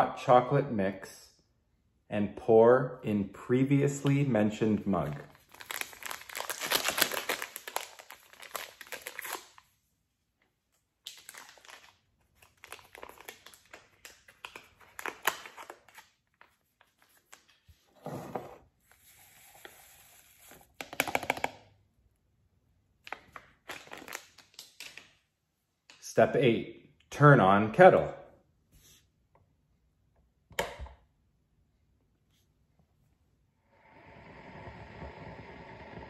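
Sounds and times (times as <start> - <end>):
packet crinkling and tearing: 5.2 - 9.7, 11.0 - 16.5, 23.1 - 25.1
powder rustling into a mug: 18.9 - 21.4.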